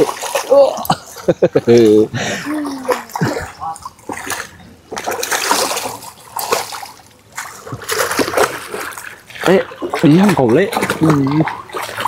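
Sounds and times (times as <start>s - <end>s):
fish thrashing and splashing in water: 0.0s - 12.0s.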